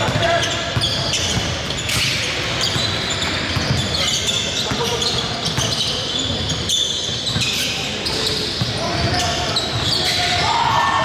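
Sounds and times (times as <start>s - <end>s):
basketball bouncing on court: 0.0s - 7.6s
players' voices: 0.0s - 11.0s.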